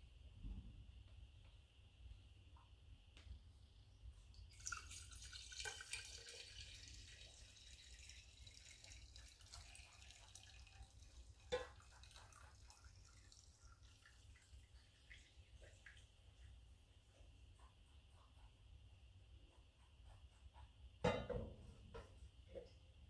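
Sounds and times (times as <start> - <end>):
liquid pouring into a glass jar: 4.4 - 16.0.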